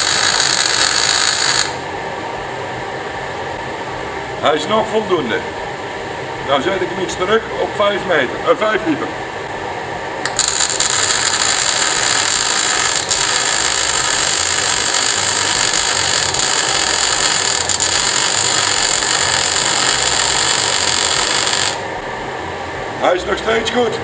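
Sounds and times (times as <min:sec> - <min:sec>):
welding arc burning: 0:00.0 - 0:01.8, 0:10.2 - 0:22.0
fume extractor fan: 0:00.0 - 0:24.0.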